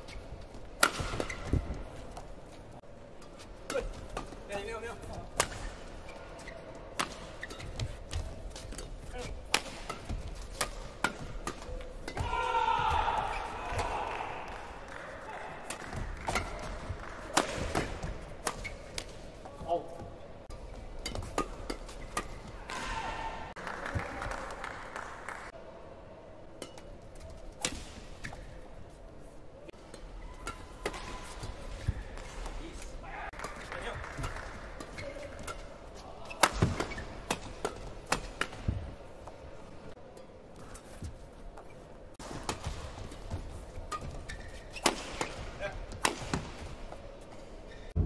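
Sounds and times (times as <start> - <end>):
shoes squeaking on court: 0.0 - 2.7, 5.0 - 12.0, 17.7 - 19.8, 33.6 - 39.4, 42.6 - 45.5
rackets hitting shuttlecock: 0.7 - 1.8, 5.3 - 5.8, 6.9 - 19.3, 29.9 - 38.9, 43.9 - 46.6
players shouting: 12.2 - 15.7.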